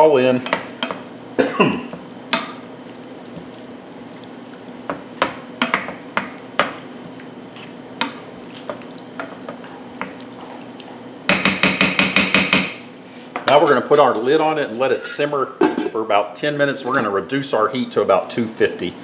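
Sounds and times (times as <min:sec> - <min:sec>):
spoon stirring sauce: 0:01.9 - 0:11.0
spoon knocking against pan: 0:11.3 - 0:12.8.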